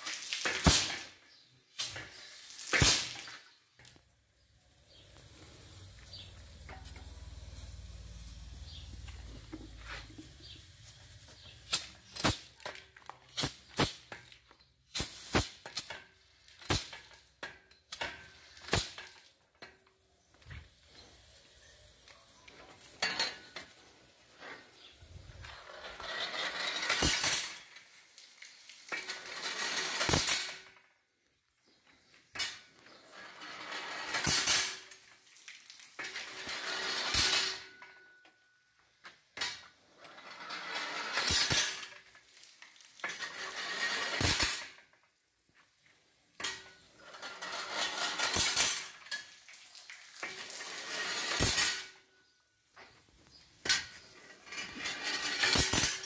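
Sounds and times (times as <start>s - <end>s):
sharp metallic clank: 51.0s - 52.0s, 53.6s - 56.0s.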